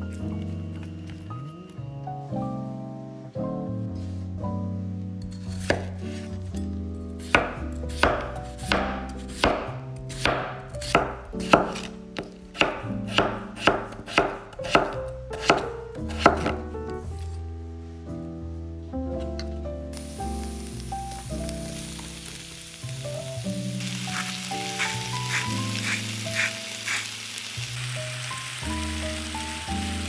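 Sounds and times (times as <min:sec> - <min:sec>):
knife chopping on wooden board: 0:05.6 - 0:06.0, 0:07.3 - 0:16.6.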